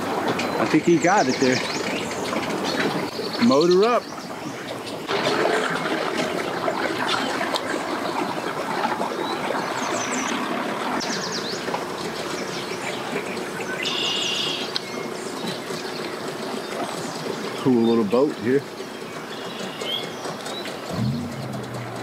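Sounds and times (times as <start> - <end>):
birds chirping: 0.0 - 22.0
outboard motors running slowly: 0.0 - 22.0.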